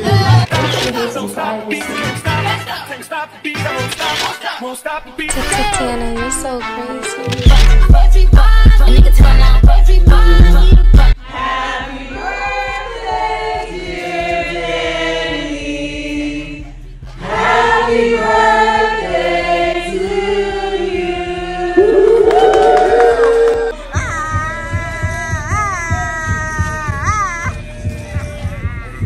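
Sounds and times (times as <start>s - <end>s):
loud music with heavy beat: 7.5s - 11.2s
group singing in harmony: 11.1s - 16.6s, 17.2s - 23.8s.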